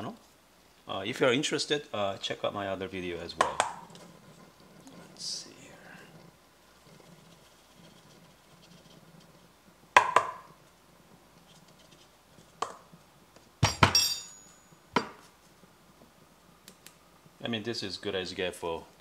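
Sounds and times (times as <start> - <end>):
plastic cup knocking on metal portafilter: 10.0 - 10.4.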